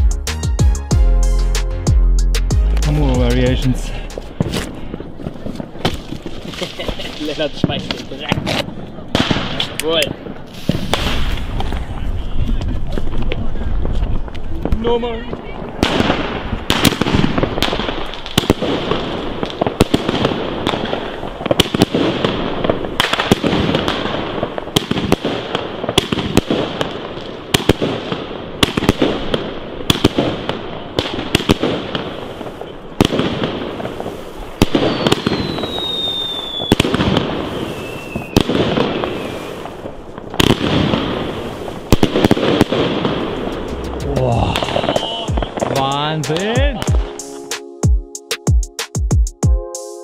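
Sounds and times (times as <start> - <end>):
firework shots bursting: 2.8 - 12.0, 13.0 - 47.6
falling whistle tone: 34.9 - 36.8, 37.6 - 39.4.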